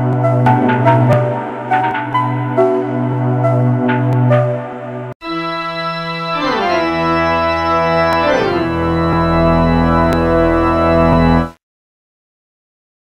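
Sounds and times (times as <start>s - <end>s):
organ-like chords: 5.2s - 11.6s.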